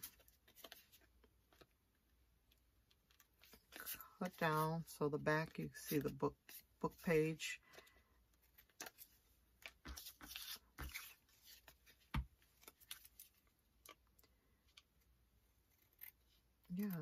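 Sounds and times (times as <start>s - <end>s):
paper rustling: 8.5s - 13.4s.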